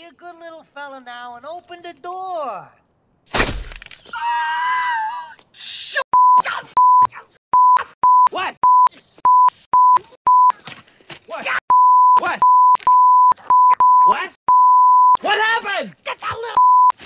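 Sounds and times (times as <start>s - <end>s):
censor bleeps: 6.2s - 10.5s, 11.7s - 15.2s, 16.6s - 17.0s.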